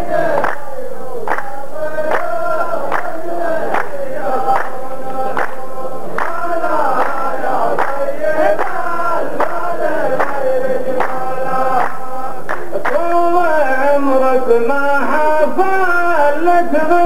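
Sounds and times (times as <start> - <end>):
men chanting in unison: 0.0 - 17.0
hands clapping together: 0.3 - 13.1.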